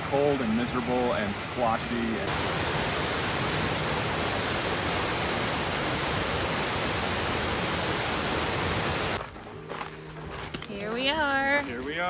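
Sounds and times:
waterfall and stream rushing: 0.0 - 9.2.

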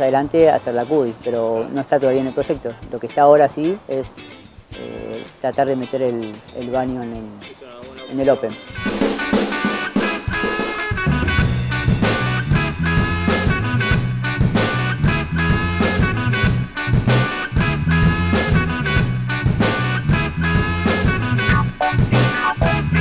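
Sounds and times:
background music with steady beat: 0.0 - 23.0
bass line: 8.8 - 23.0.

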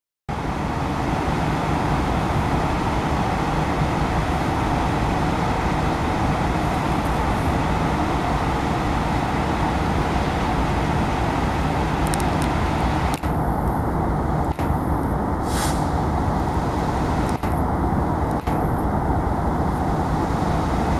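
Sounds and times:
car engine rumble: 0.3 - 20.9
even hiss: 15.4 - 17.6.

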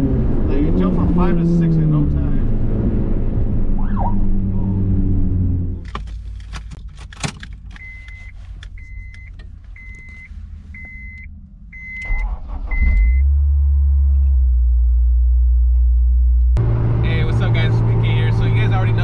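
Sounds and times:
car warning chime beeping: 7.8 - 13.2.

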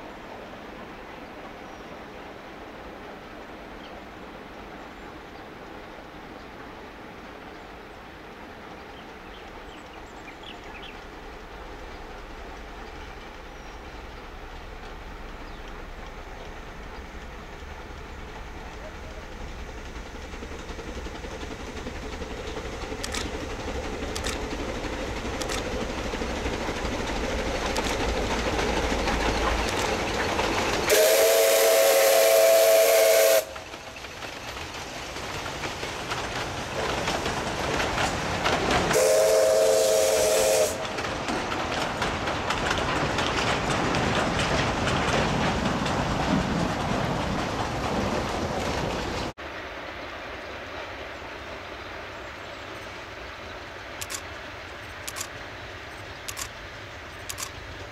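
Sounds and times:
steam train running noise: 0.0 - 57.9
steam whistle blasts: 30.9 - 33.6, 38.9 - 40.8.

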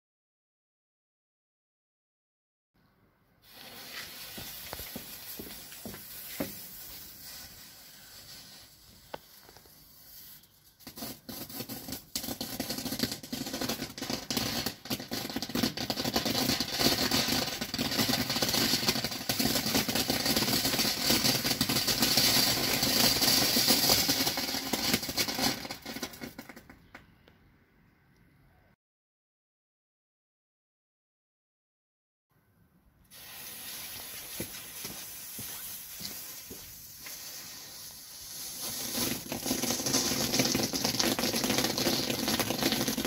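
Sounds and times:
fuse fizzing: 3.4 - 9.4, 33.1 - 43.0
firework fountain hissing and crackling: 3.4 - 26.7, 33.1 - 43.0.

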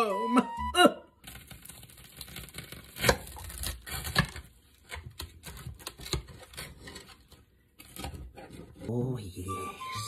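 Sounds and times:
toasted bread crunching: 1.2 - 7.1
bread cracking: 1.2 - 8.3.

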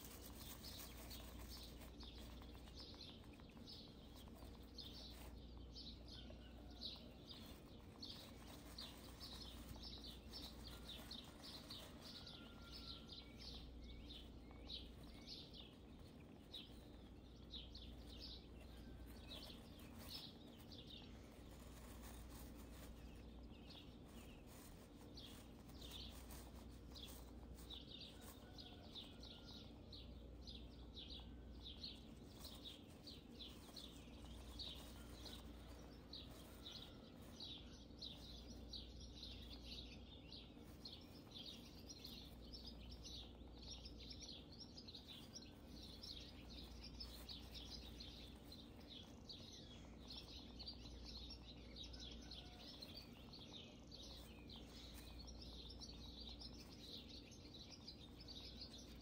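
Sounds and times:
rapid high chirping: 30.0 - 51.1.

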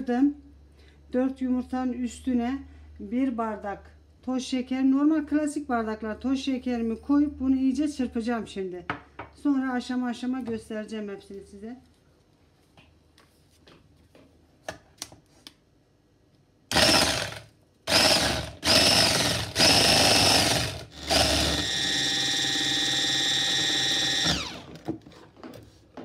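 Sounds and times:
electric hand mixer whirring: 16.7 - 24.8.

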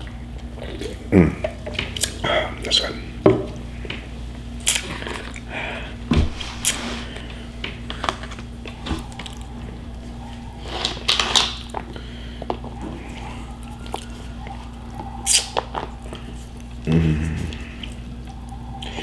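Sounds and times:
low hum: 0.0 - 19.0
chewing: 4.6 - 5.5, 6.6 - 19.0.

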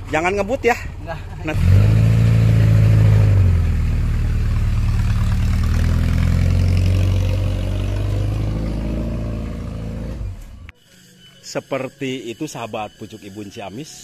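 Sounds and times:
pickup truck engine running: 0.0 - 10.2.

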